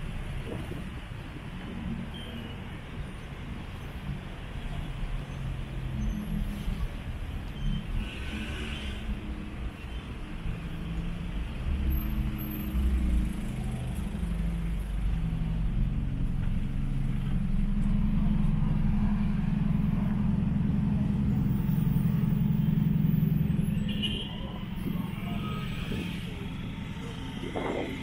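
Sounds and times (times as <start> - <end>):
vehicle engines running close by: 0.0 - 28.0.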